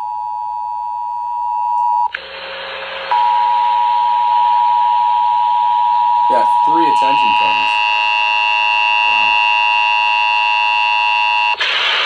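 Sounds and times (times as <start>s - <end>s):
radio static hiss: 2.1s - 3.7s, 6.3s - 7.9s, 8.8s - 10.0s, 11.4s - 12.0s.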